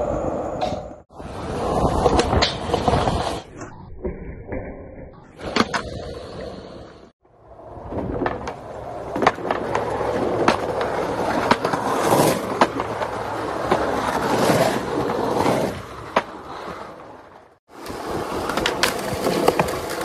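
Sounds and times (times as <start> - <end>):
skateboard wheels rolling on asphalt: 0.0 - 3.7, 5.3 - 20.0
skateboard wooden clacks: 7.9 - 14.2, 16.1 - 16.7, 17.8 - 20.0.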